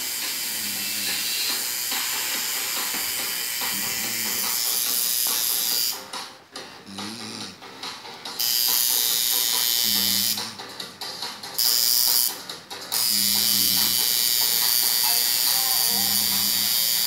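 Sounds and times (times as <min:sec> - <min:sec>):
tattoo machine hiss: 0:00.0 - 0:06.1, 0:08.4 - 0:10.4, 0:11.6 - 0:17.0.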